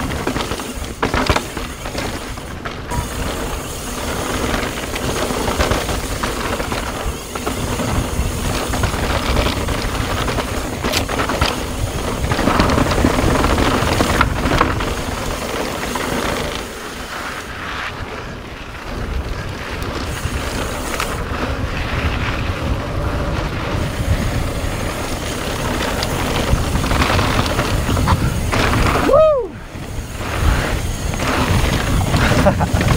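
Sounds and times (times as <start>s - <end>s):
tyre rumble on dirt: 0.0s - 16.9s, 18.8s - 29.0s
bike knocking and rattling: 0.0s - 32.9s
wind rushing over microphone: 0.0s - 32.9s.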